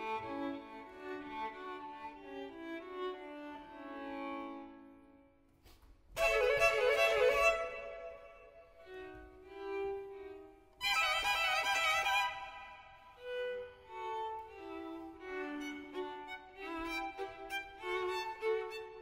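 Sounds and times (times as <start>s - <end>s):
violin music: 0.0s - 19.0s.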